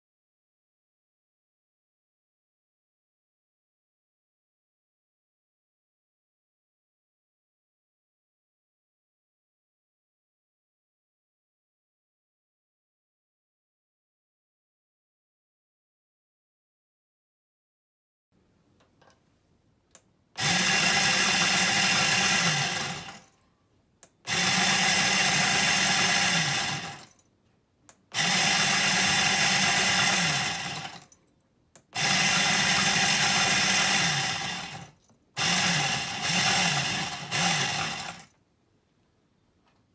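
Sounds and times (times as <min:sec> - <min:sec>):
coffee grinder grinding beans: 0:20.4 - 0:23.3, 0:24.3 - 0:27.1, 0:28.2 - 0:31.1, 0:32.0 - 0:38.3.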